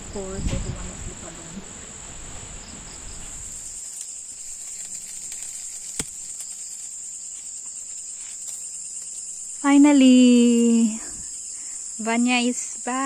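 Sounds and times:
high-pitched insect drone: 2.6s - 13.0s.

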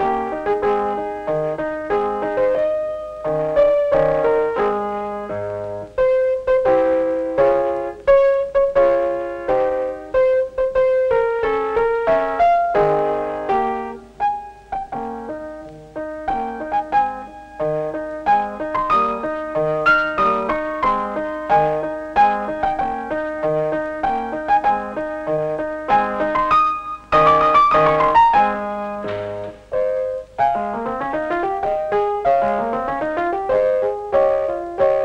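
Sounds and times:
piano music: 0.0s - 35.0s.

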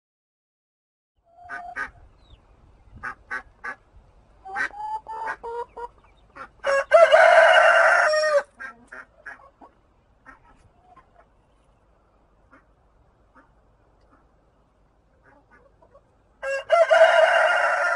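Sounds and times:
chickens clucking: 1.3s - 17.9s
rooster crowing: 6.6s - 8.5s, 16.4s - 17.9s.

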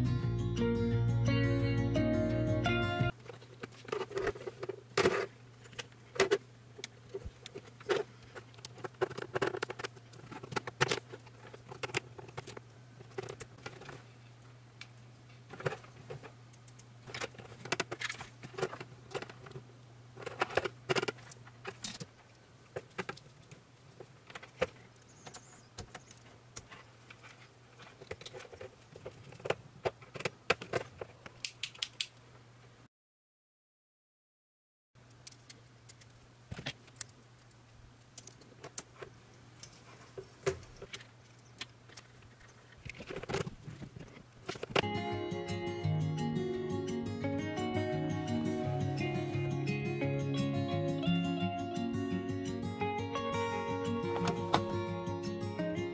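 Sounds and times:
plastic parts clicking and rustling: 3.1s - 14.2s, 15.3s - 32.2s, 35.1s - 44.9s.

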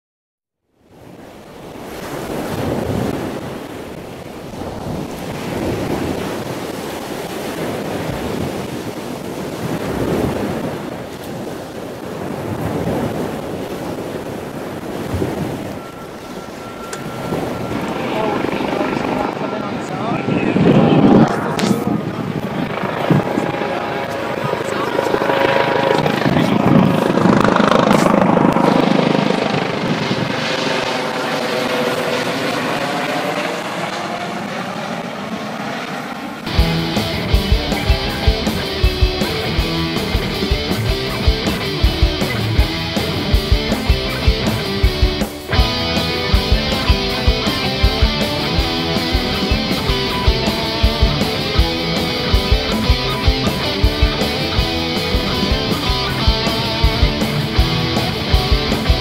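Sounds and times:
surf breaking over reef: 0.8s - 35.3s, 36.1s - 59.0s
wind on microphone: 1.0s - 34.2s
helicopter rotor chopping: 11.9s - 59.0s.

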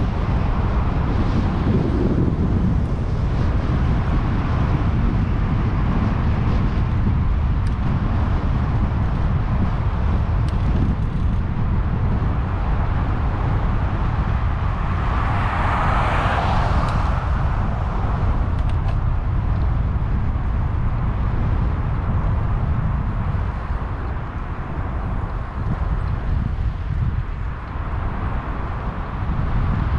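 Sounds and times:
wind rushing over camera: 0.0s - 29.9s
vehicle passing: 13.7s - 19.4s.

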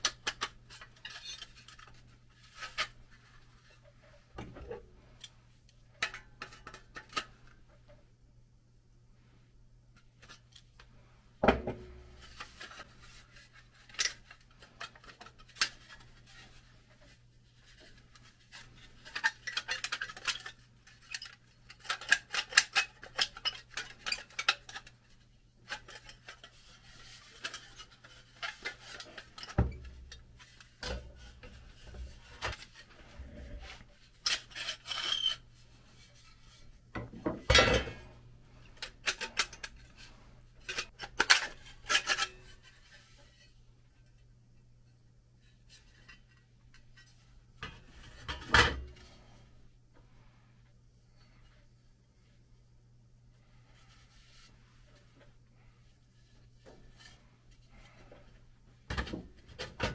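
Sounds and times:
metal parts clinking and scraping: 32.4s - 35.4s.

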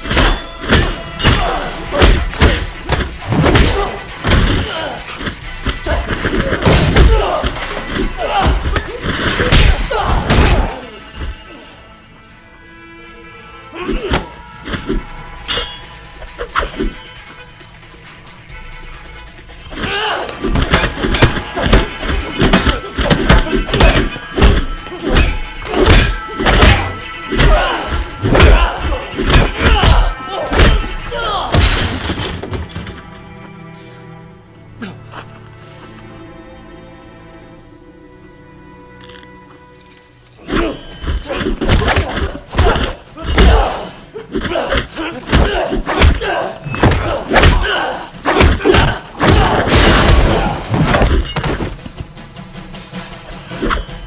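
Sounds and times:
action music: 0.0s - 54.0s
punch and kick impacts: 0.1s - 4.8s, 20.5s - 32.0s, 44.8s - 51.8s
grunts of effort: 40.4s - 49.7s.

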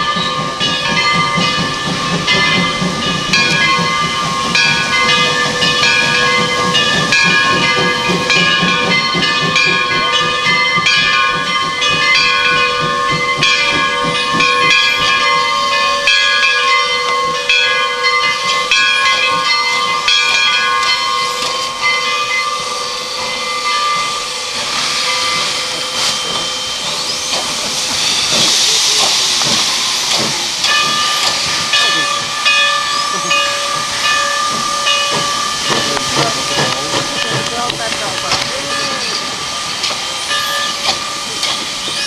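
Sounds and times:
steam hissing: 0.0s - 42.0s
steam locomotive whistles: 19.4s - 42.0s.

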